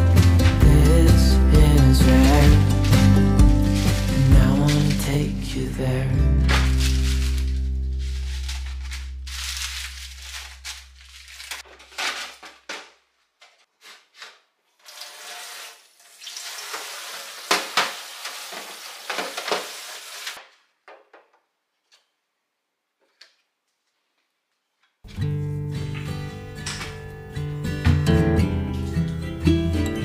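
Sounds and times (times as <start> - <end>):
handling and rustling: 0.0 - 5.4, 6.4 - 14.8.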